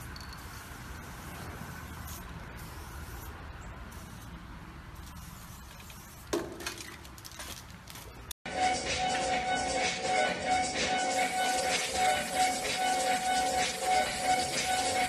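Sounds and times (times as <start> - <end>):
spray can hissing: 0.0 - 6.5, 11.2 - 15.0.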